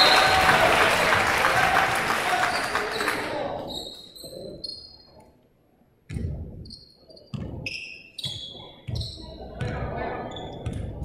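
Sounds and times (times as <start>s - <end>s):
crowd cheering: 0.0s - 3.5s
sneaker squeaks: 2.5s - 5.4s, 6.6s - 11.0s.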